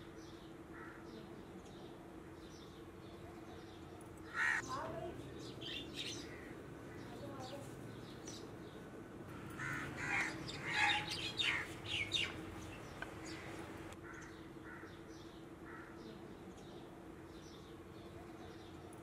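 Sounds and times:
small birds chirping: 0:00.0 - 0:19.0
crows cawing: 0:00.7 - 0:01.0, 0:04.3 - 0:04.7, 0:09.6 - 0:12.2, 0:13.4 - 0:15.0, 0:15.6 - 0:16.0.

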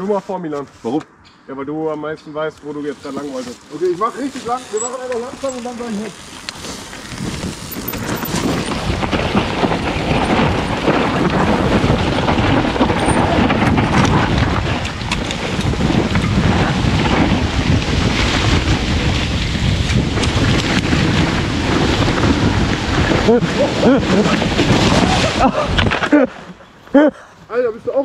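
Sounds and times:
bike tyres rumbling and rattling: 0:02.6 - 0:28.0
wind on microphone: 0:03.0 - 0:26.4.

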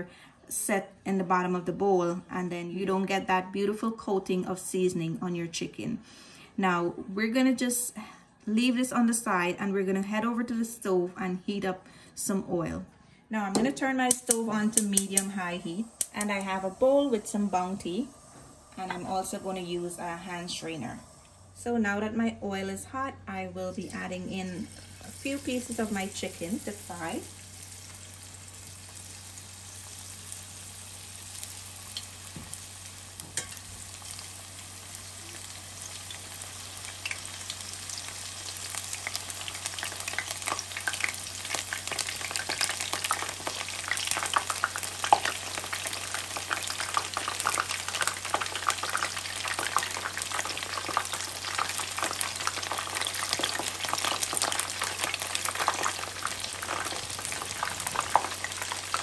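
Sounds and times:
chicken deep-frying in oil: 0:23.8 - 0:59.0.

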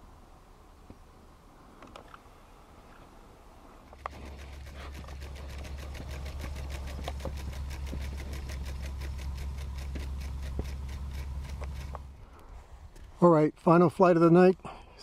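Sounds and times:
steady low hum: 0:00.0 - 0:13.6
model airplane propeller ticking: 0:03.9 - 0:12.2.

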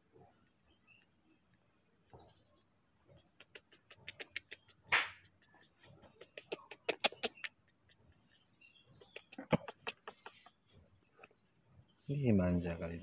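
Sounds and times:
baby monkey sucking fingers: 0:03.1 - 0:11.3.

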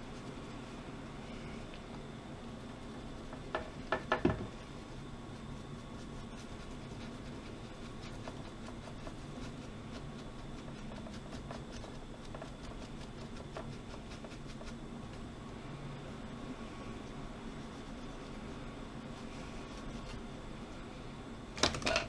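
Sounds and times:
small brush scrubbing circuit board: 0:04.8 - 0:15.3.

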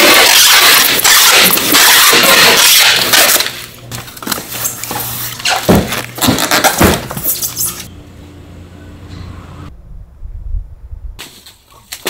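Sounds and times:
packing tape ripping: 0:00.0 - 0:07.9
styrofoam box knocks and thumps: 0:05.6 - 0:07.2.

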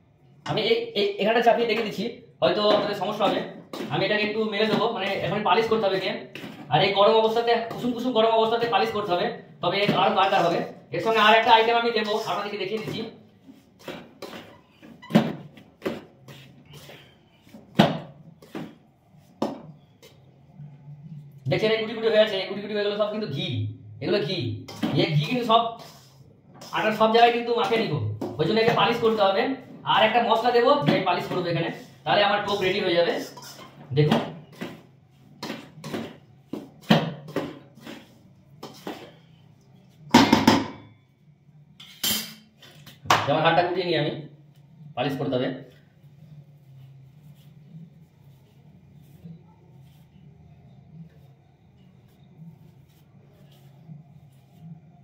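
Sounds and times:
metal spatula scraping steel bowl: 0:31.8 - 0:33.9, 0:41.8 - 0:42.5
metal spoon scraping steel bowl: 0:33.3 - 0:33.8, 0:41.8 - 0:42.5.

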